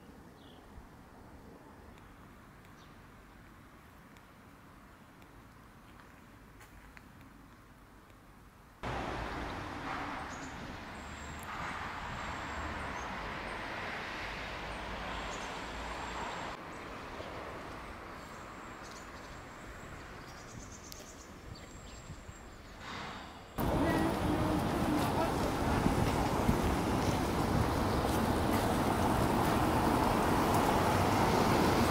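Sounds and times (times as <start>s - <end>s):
outdoor background hiss: 0.0s - 31.9s.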